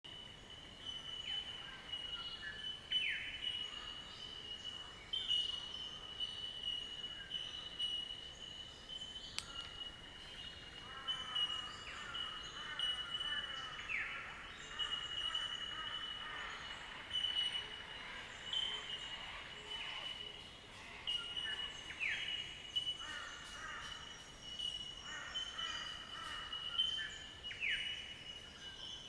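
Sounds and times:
birds chirping and whistling: 0.2s - 29.0s.

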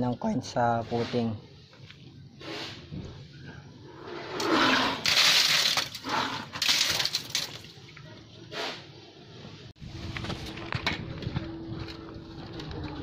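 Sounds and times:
concrete splash: 4.4s - 7.8s
wet concrete pouring from bucket: 5.0s - 7.8s.

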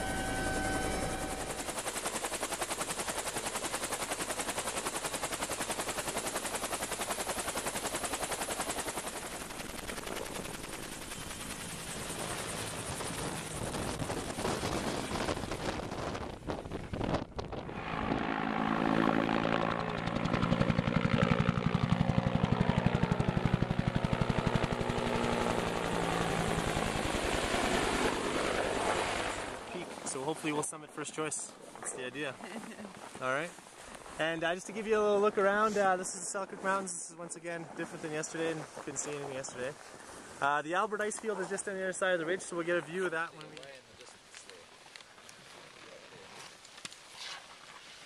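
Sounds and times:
helicopter rotor chopping: 0.0s - 39.8s.

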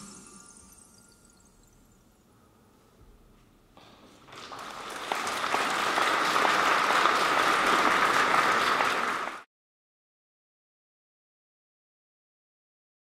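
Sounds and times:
audience applauding: 4.2s - 9.5s.

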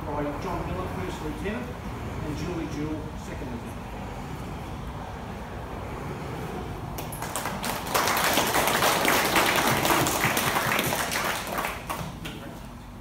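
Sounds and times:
audience applauding: 7.0s - 12.4s.

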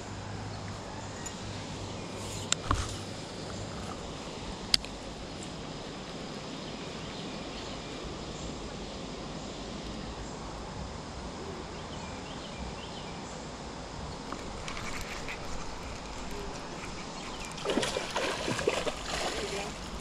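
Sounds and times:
outdoor background noise: 0.0s - 20.0s.

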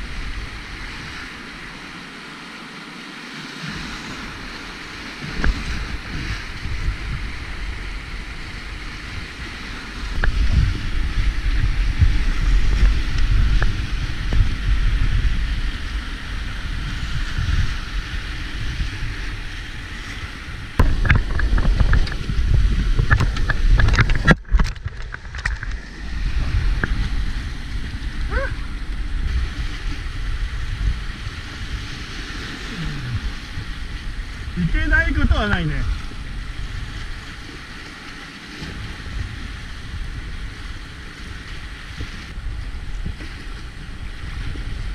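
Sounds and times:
wind buffeting on microphone: 0.0s - 1.9s, 3.7s - 44.9s
whitewater rapids rushing: 32.6s - 36.2s.

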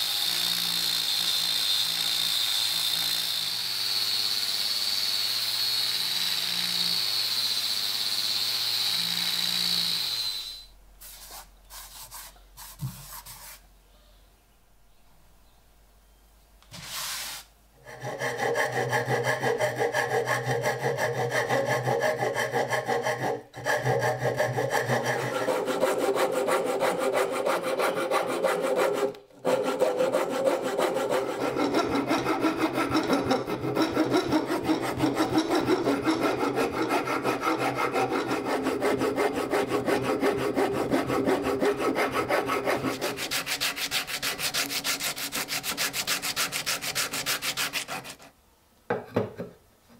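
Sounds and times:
file rasping on wood: 17.8s - 48.3s
hissy sanding strokes: 24.7s - 48.3s.

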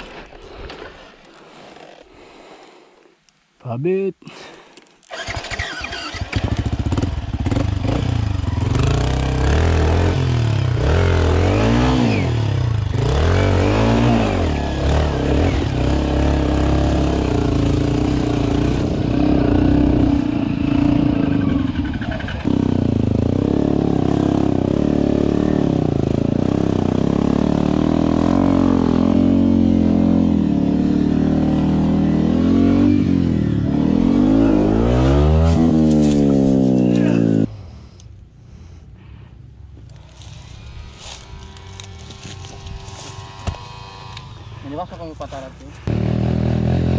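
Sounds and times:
motorbike engine revving: 5.1s - 37.6s, 39.8s - 46.9s.

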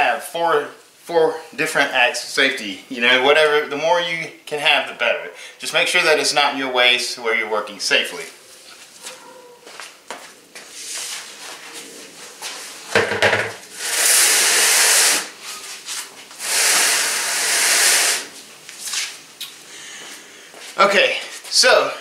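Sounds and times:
wheel knocking on concrete floor: 12.9s - 13.6s.

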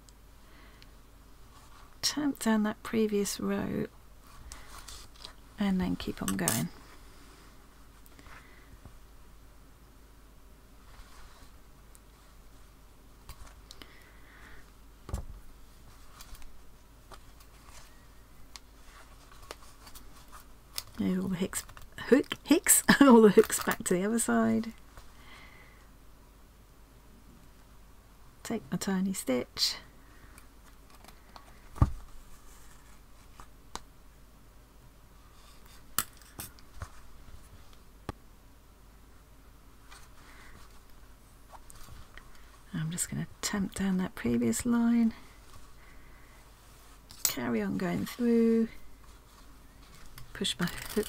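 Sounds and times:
thread rustling through fabric: 4.2s - 7.2s, 14.6s - 25.2s, 30.2s - 33.6s, 39.8s - 42.9s, 43.8s - 51.0s
needle and yarn clicking: 49.9s - 51.0s.

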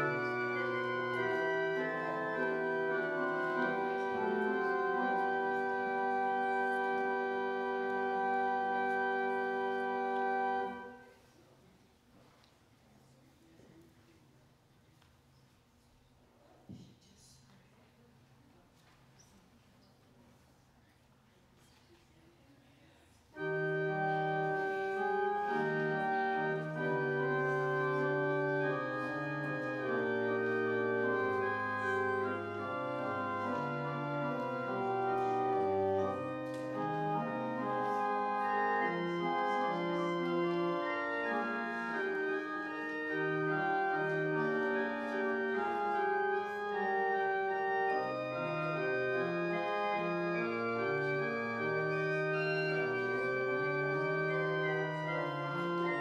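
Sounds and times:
organ playing sustained chords: 0.0s - 11.2s, 23.3s - 56.0s.

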